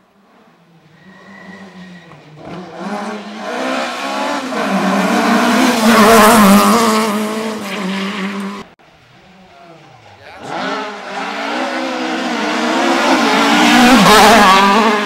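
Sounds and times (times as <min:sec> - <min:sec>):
rally car engine revving: 0:00.8 - 0:15.0
tyre noise from drifting: 0:09.5 - 0:15.0.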